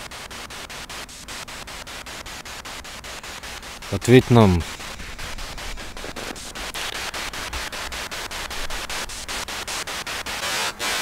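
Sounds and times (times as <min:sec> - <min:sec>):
chopped radio static: 0:02.7 - 0:11.0.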